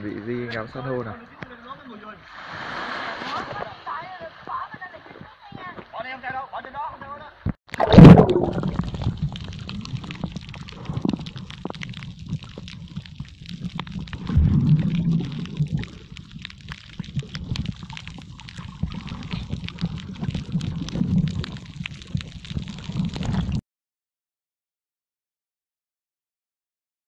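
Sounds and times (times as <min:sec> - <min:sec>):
fine underwater crackling: 0:01.5 - 0:06.2, 0:07.4 - 0:23.6
underwater rumble and gurgling: 0:07.7 - 0:23.6.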